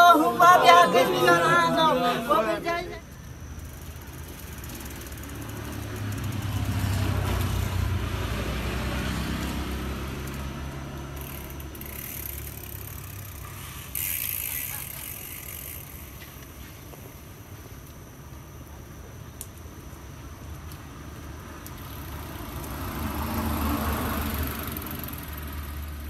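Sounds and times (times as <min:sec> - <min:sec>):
vehicle engine passing by: 0:04.7 - 0:12.9, 0:22.0 - 0:26.0.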